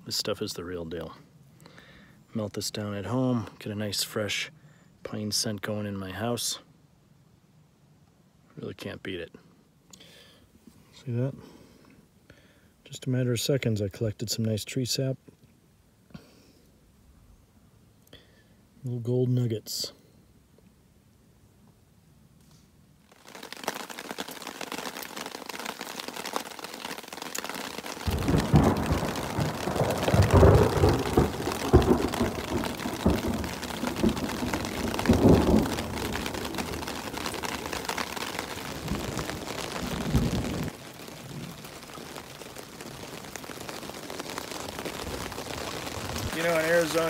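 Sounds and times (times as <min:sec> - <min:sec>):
steady rain falling: 0:20.8 - 0:47.0
thunder rumbling: 0:28.0 - 0:47.0.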